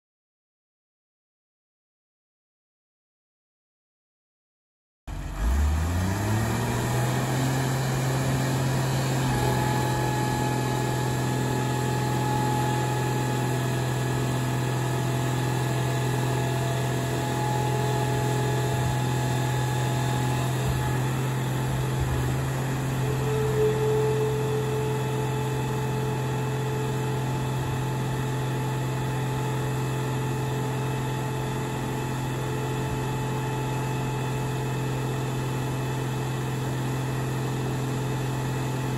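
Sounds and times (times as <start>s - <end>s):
hydraulic power unit engine: 5.1s - 38.9s
thin hydraulic whine: 18.8s - 28.1s.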